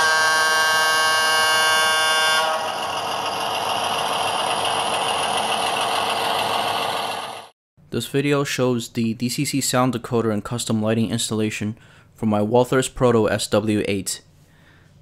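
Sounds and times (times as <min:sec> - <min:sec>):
locomotive horn from small speaker: 0:00.0 - 0:02.9
diesel engine sound: 0:00.0 - 0:07.6.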